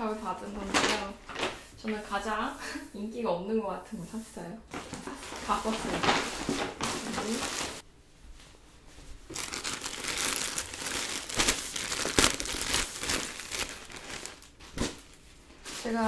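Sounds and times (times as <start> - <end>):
plastic wrapping crinkling: 0.2 - 1.7, 4.7 - 7.8, 9.3 - 16.0
paper bag rustling: 0.3 - 1.7, 4.7 - 7.8, 9.3 - 16.0.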